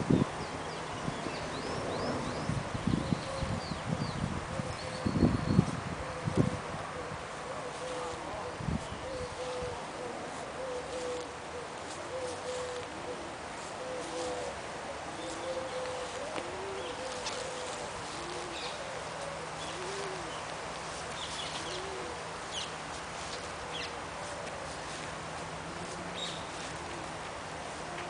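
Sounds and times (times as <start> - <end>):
dove cooing: 1.8 - 28.0
small birds chirping: 15.2 - 25.1, 25.8 - 27.1.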